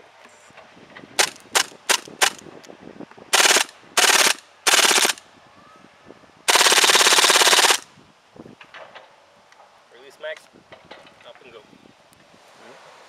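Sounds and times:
airsoft gun firing: 1.2 - 2.4, 3.3 - 5.2, 6.5 - 7.8.

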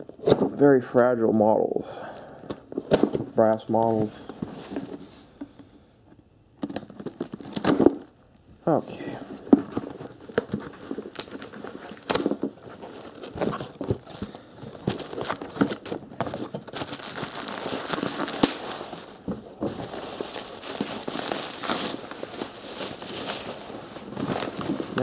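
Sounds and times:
cardboard rustling: 2.7 - 5.3, 9.2 - 25.0
plastic wrap crinkling: 6.6 - 25.0.

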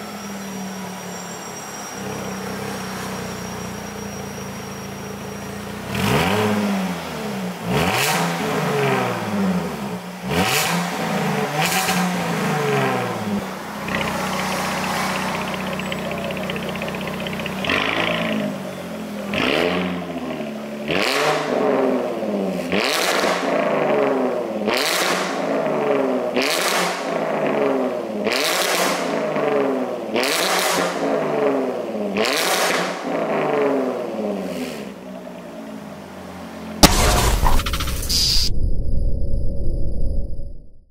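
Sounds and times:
car engine revving: 5.8 - 34.8.

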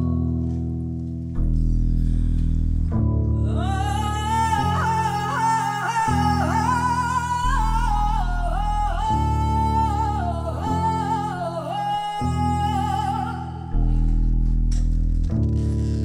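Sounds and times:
plucked upright bass: 0.0 - 11.5, 12.3 - 16.0
woman singing: 3.3 - 14.7.

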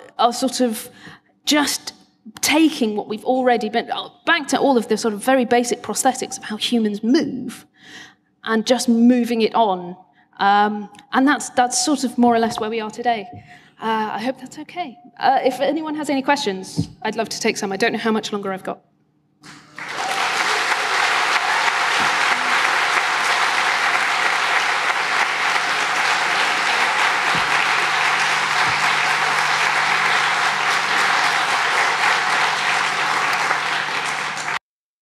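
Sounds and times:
audience applauding: 19.5 - 34.6.

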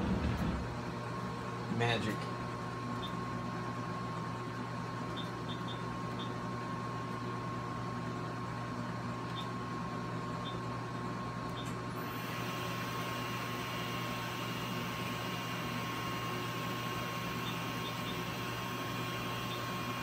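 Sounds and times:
machine hum with held tone: 0.0 - 20.0.

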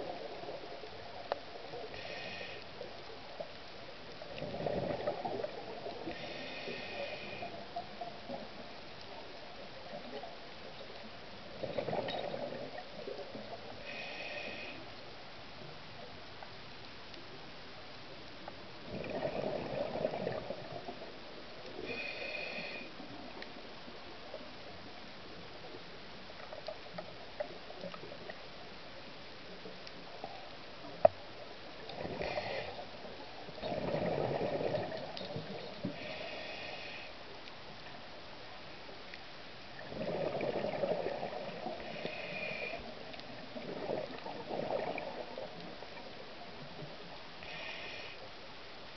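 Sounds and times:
underwater bubbles: 0.0 - 48.9
diver breathing through regulator: 1.9 - 2.7, 6.0 - 7.6, 13.8 - 14.9, 21.8 - 23.0, 35.9 - 37.2, 47.4 - 48.2.

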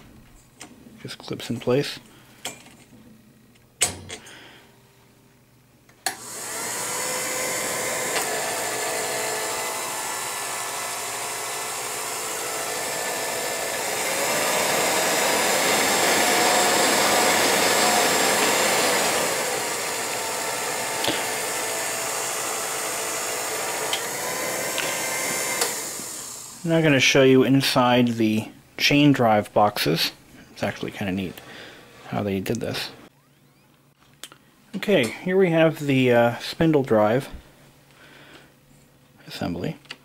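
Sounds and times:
projector motor whirring: 6.0 - 26.8.

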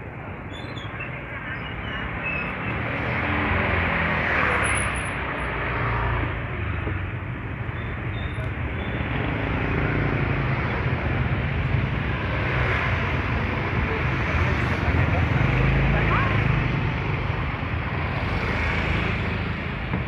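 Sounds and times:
street traffic din: 0.0 - 20.0.

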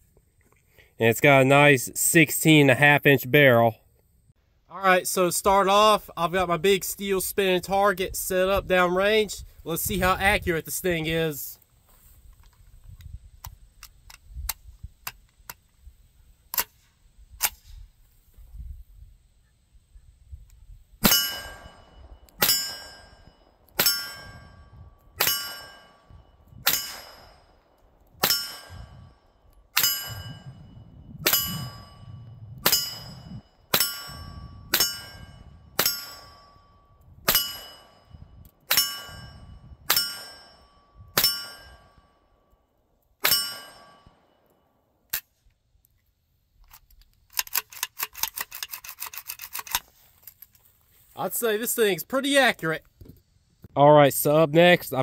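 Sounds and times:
steel target ringing ping: 21.0 - 27.6, 28.2 - 29.2, 29.8 - 42.3, 43.2 - 44.4
rifle shots: 26.6 - 27.5
metallic rifle rattle: 46.6 - 50.7.

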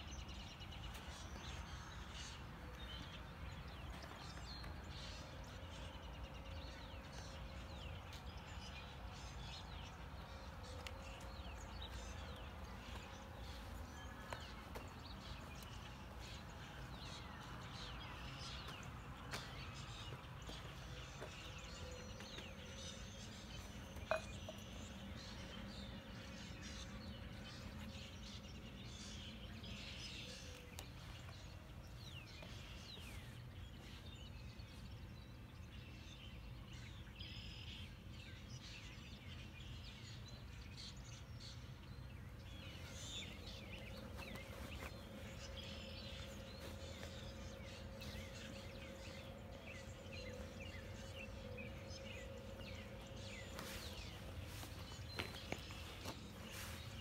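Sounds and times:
faint steady hum: 0.0 - 57.0
songbirds chirping: 0.0 - 57.0
low outdoor rumble: 41.0 - 57.0.

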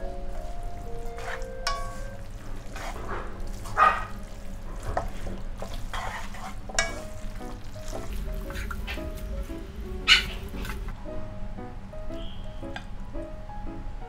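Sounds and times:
soft sizzle: 0.0 - 14.0
spatula scraping a wok: 1.1 - 9.4.

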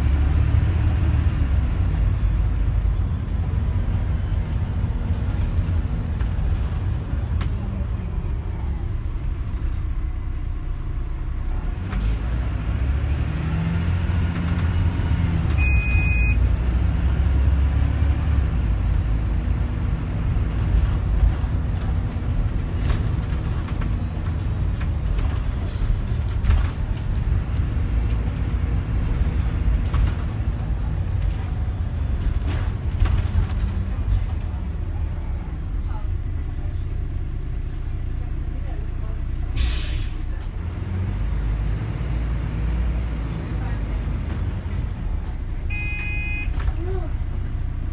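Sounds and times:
bus diesel engine: 0.0 - 47.9
short high beep: 15.6 - 16.4, 45.7 - 46.6.

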